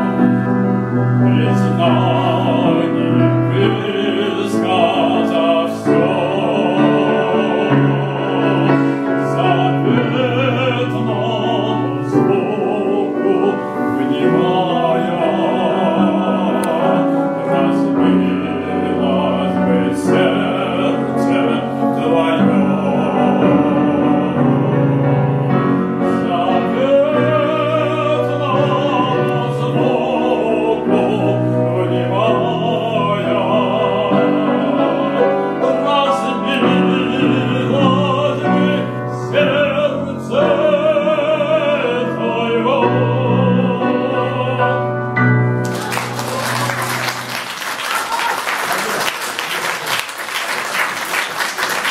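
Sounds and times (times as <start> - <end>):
man singing with vibrato: 0.0 - 46.6
piano accompaniment: 0.0 - 51.9
audience applause: 45.6 - 51.9.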